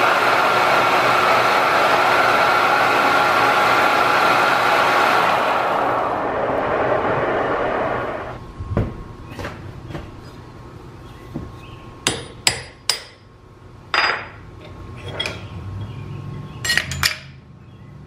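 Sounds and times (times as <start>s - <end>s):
metallic clanks of steel tooling: 14.0s - 15.9s, 16.6s - 17.4s.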